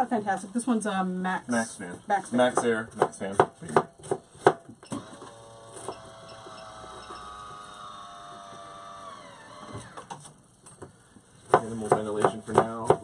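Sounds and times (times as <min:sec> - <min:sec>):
roof vent fan motor whining: 0:04.8 - 0:10.5.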